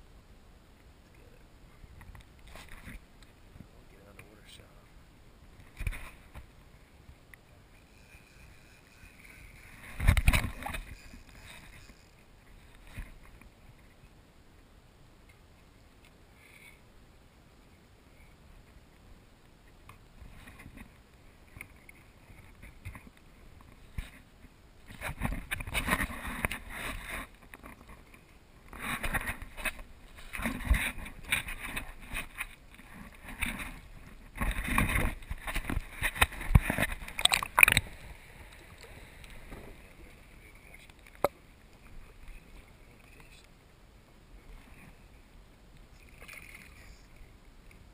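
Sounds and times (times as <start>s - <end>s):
faint water: 0.0s - 47.9s
wind noise: 7.9s - 13.9s, 28.7s - 40.1s
kayak hull knocking and rumbling: 9.6s - 13.7s, 28.8s - 38.0s.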